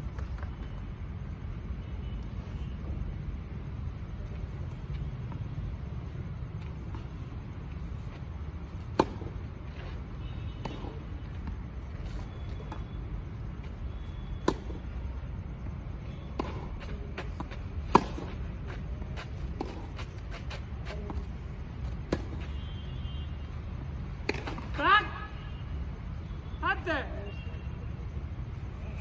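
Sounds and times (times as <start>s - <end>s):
ball bouncing: 14.4s - 14.9s, 16.2s - 21.2s
tennis racket hitting ball: 16.4s - 18.4s.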